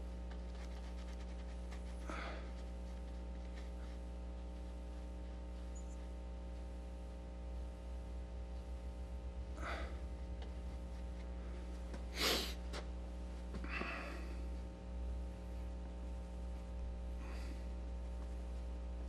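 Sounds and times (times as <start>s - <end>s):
steady electrical hum: 0.0s - 19.0s
man breathing and sniffing: 0.9s - 5.5s, 9.5s - 12.7s, 13.4s - 14.7s.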